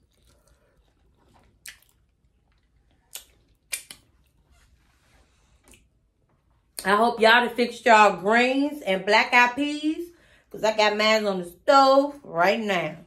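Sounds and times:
person chewing food: 0:00.0 - 0:04.4
mouth and finger smacks: 0:03.1 - 0:04.1.

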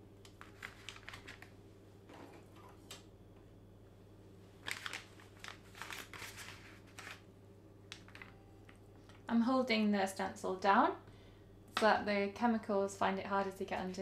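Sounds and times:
faint low hum: 0:00.0 - 0:14.0
packing paper crinkling: 0:00.3 - 0:01.6, 0:04.6 - 0:07.3, 0:07.9 - 0:09.2.

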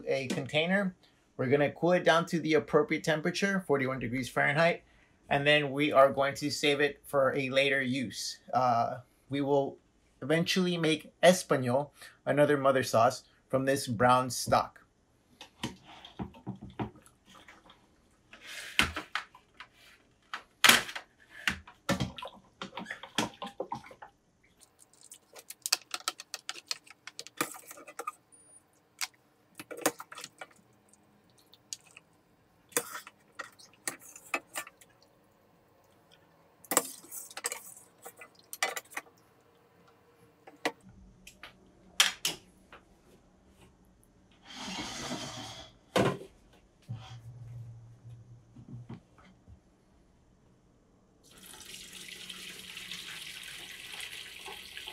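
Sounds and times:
liquid dripping and splashing: 0:22.0 - 0:27.7.

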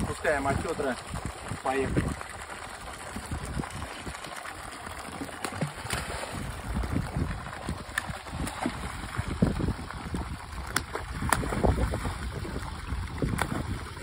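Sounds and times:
wind buffeting microphone: 0:00.0 - 0:04.2, 0:05.6 - 0:14.0
water pouring into pond: 0:00.0 - 0:14.0
fish splashing into water: 0:04.0 - 0:14.0.

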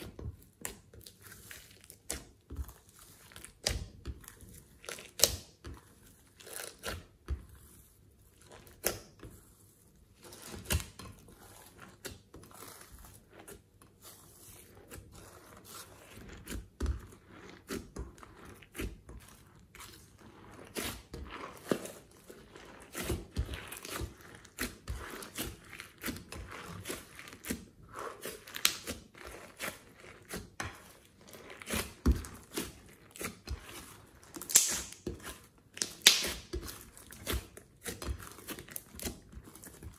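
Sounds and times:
slime popping and crackling: 0:28.4 - 0:29.6, 0:31.5 - 0:39.7.

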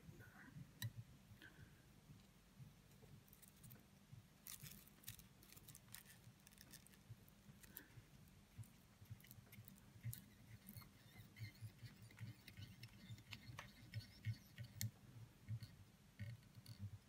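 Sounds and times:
faint ticks and soft taps: 0:06.9 - 0:17.0.

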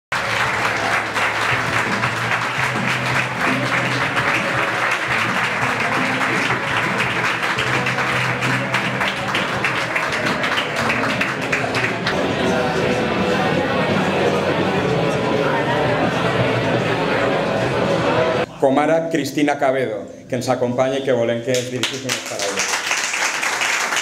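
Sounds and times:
crowd clapping: 0:00.1 - 0:12.8, 0:21.5 - 0:24.0
music over loudspeakers: 0:00.1 - 0:21.2.

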